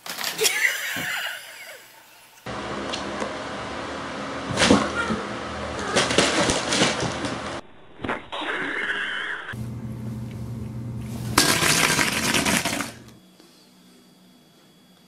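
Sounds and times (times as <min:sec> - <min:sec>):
steady background hum: 0:00.4 - 0:15.0.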